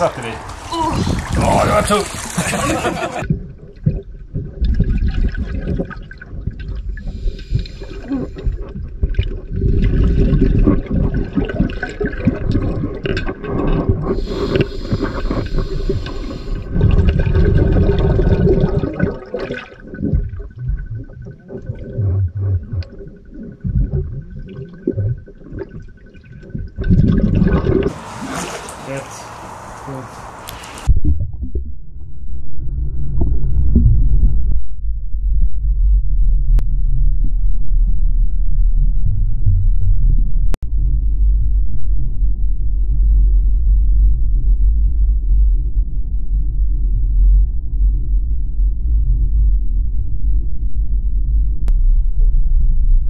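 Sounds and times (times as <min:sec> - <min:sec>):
underwater rumbling and gurgling: 0:00.0 - 0:28.8, 0:30.8 - 0:53.0
water splashing: 0:00.0 - 0:30.9.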